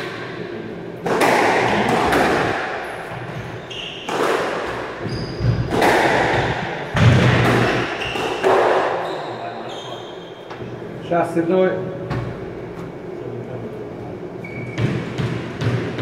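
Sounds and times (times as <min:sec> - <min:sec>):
squash ball hit by racket: 0:01.0 - 0:09.0, 0:14.7 - 0:16.0
shoes squeaking on wooden floor: 0:03.0 - 0:05.7, 0:07.9 - 0:10.7, 0:14.4 - 0:15.0.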